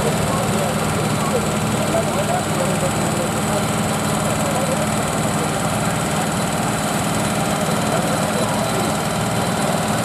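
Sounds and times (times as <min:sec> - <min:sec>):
diesel tractor engine under load: 0:00.0 - 0:10.0.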